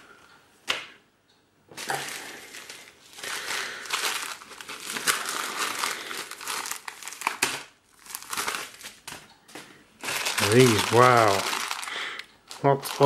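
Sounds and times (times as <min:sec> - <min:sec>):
plastic mailer bag crinkling: 0:01.8 - 0:09.2, 0:10.0 - 0:13.0.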